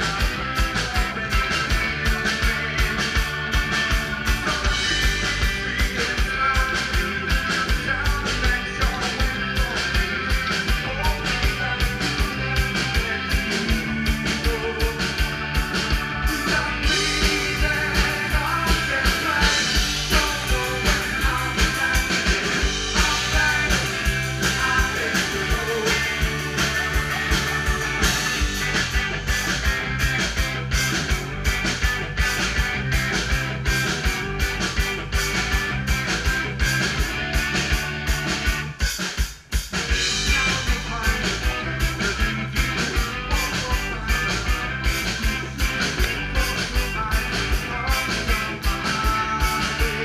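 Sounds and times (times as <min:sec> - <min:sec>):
man singing: 0:00.0 - 0:02.9, 0:04.3 - 0:15.3, 0:16.2 - 0:28.1, 0:40.2 - 0:50.0
drum kit beat: 0:00.0 - 0:50.0
electric guitars: 0:00.0 - 0:50.0.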